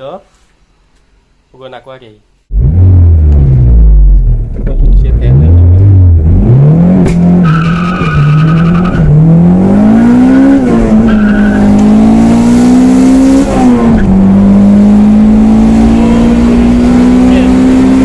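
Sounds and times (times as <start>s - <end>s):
car engine accelerating: 2.5s - 18.0s.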